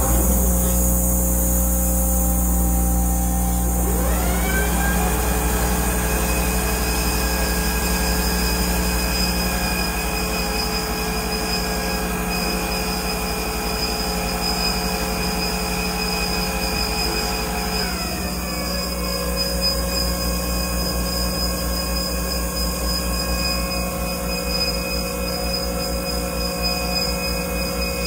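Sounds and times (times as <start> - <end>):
bandsaw whine: 0.0 - 28.0.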